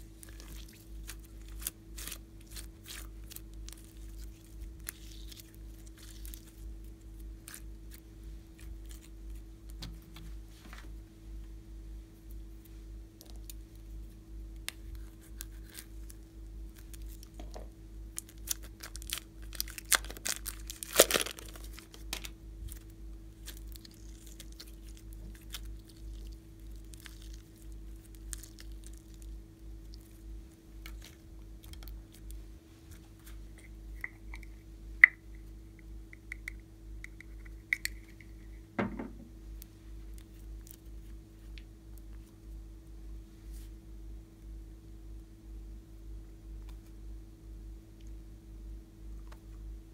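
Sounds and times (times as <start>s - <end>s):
low hum: 0.0s - 49.9s
slime crackling and popping: 0.1s - 8.0s, 18.1s - 30.2s.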